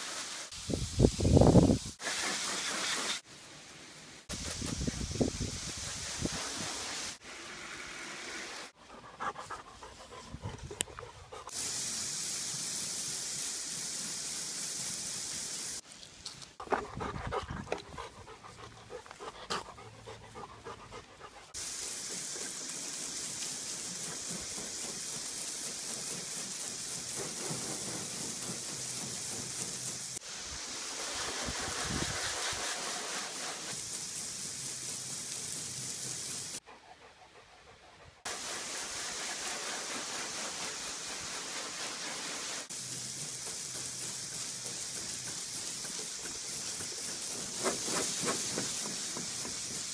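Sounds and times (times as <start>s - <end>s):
hose spraying water: 0.0s - 36.6s, 38.2s - 49.9s
breathy panting sounds: 8.8s - 11.5s, 16.6s - 21.5s, 36.6s - 38.3s.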